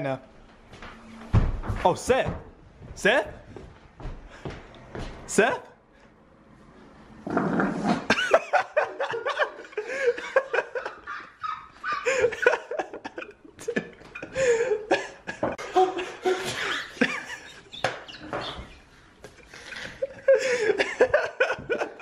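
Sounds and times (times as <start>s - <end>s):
man laughing hard: 8.1s - 17.7s, 19.7s - 22.0s.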